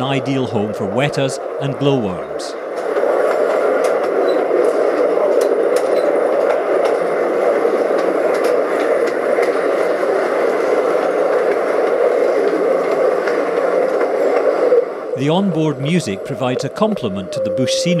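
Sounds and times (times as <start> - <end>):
train running through tunnel: 0.0 - 18.0.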